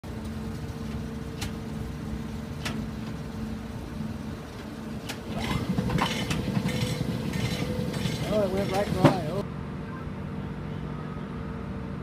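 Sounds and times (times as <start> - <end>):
belt conveyor rumbling: 0.0 - 9.4
machinery clatter: 0.0 - 9.4.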